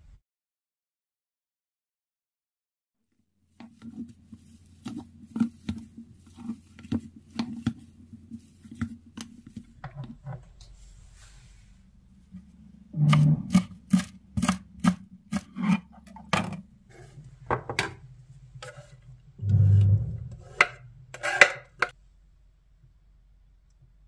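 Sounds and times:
knife chopping on cutting board: 0:13.0 - 0:15.9.

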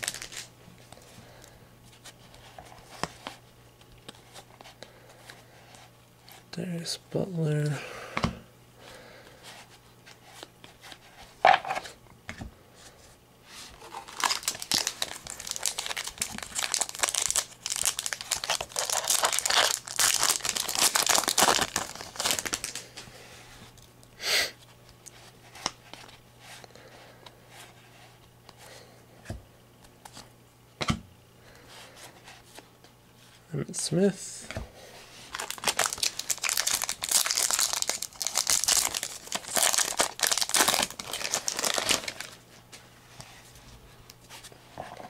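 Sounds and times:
wrapper tearing and crinkling: 0:00.0 - 0:00.5, 0:13.8 - 0:23.0, 0:35.3 - 0:42.4.

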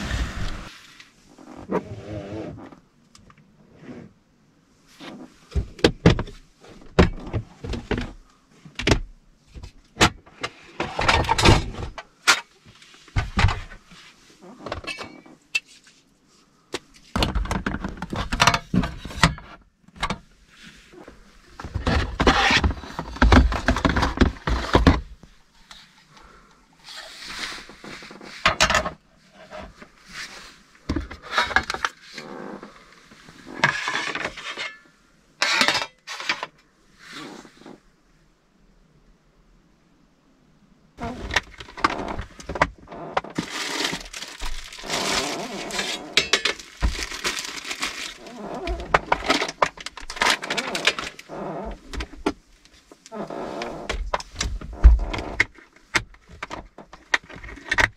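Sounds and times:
rustling and clatter of gear: 0:04.9 - 0:37.8, 0:41.0 - 0:57.9.

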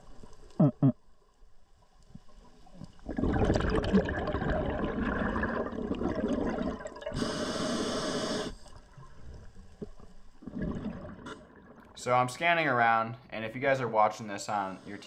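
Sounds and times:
underwater gurgling rush: 0:02.9 - 0:07.5, 0:08.5 - 0:11.9
high hiss: 0:07.2 - 0:08.7, 0:14.4 - 0:15.0.

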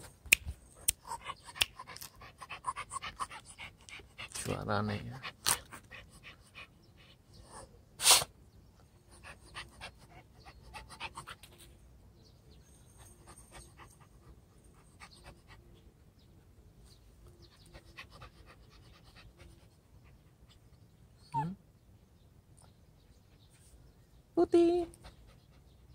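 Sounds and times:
puppy panting: 0:00.9 - 0:04.6, 0:09.1 - 0:11.6, 0:17.2 - 0:20.8, 0:24.9 - 0:25.9.

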